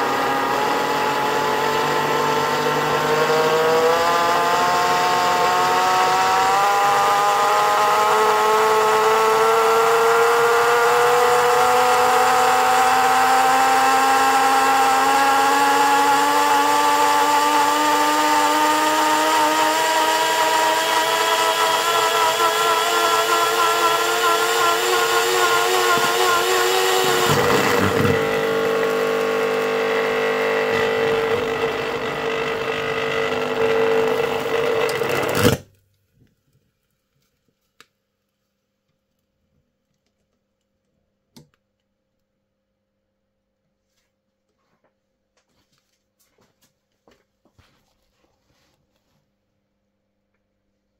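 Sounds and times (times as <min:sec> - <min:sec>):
blender motor whining: 0:00.0 - 0:35.7.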